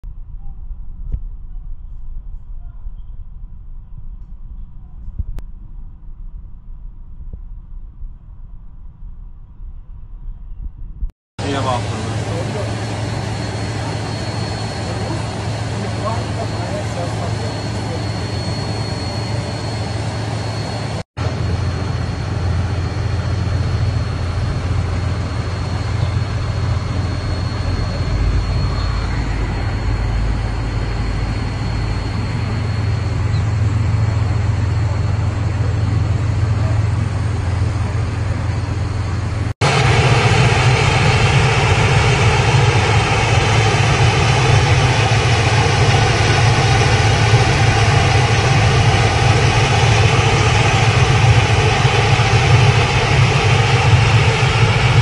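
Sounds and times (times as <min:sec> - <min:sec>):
heavy vehicle engines idling: 0:11.4 - 0:54.8
loud steady engine drone: 0:11.4 - 0:55.0.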